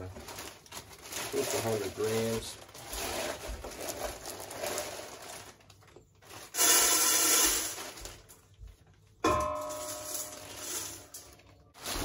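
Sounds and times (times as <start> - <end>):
grain pouring into bag: 0.0 - 5.6, 6.2 - 8.3
plastic bag rustling: 0.0 - 12.0.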